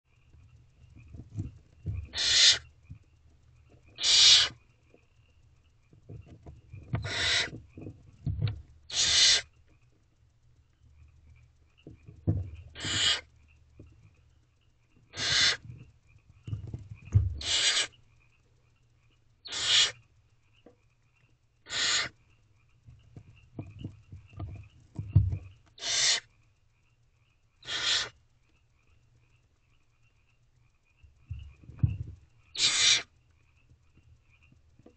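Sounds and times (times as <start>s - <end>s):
owlets hissing calls: 2.1s - 2.7s, 4.0s - 4.6s, 7.0s - 7.6s, 8.9s - 9.5s, 12.8s - 13.3s, 15.1s - 15.6s, 17.4s - 18.0s, 19.4s - 20.0s, 21.7s - 22.2s, 25.8s - 26.3s, 27.6s - 28.2s, 32.6s - 33.1s.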